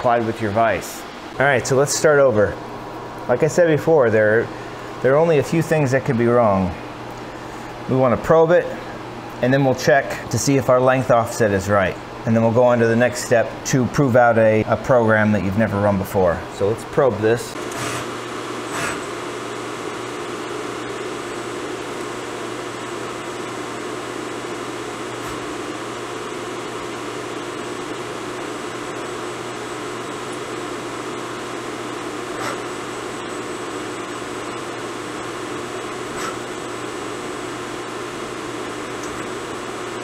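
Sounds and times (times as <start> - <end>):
milling machine hum and whir: 0.0 - 40.0.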